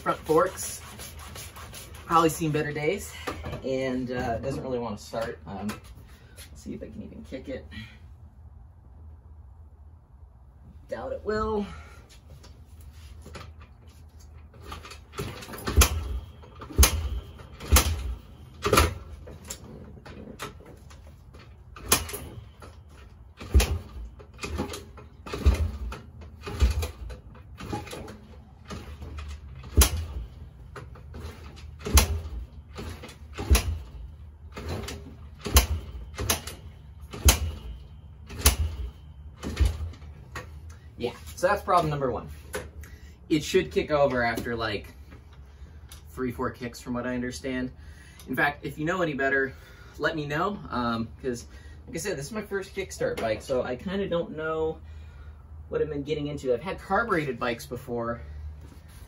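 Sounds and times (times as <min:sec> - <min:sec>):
motorcycle kickstart thumps: 0:14.3 - 0:40.6.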